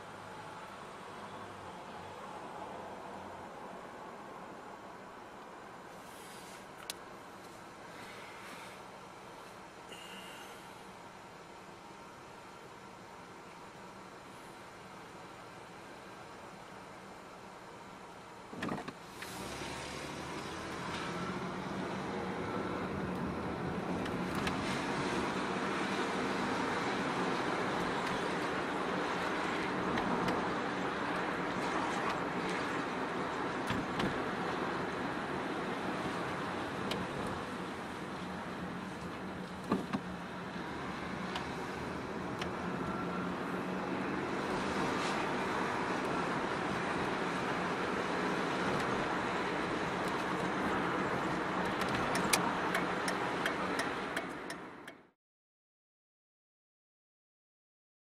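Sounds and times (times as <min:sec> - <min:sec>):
car engine and tyre noise: 0:00.0 - 0:55.1.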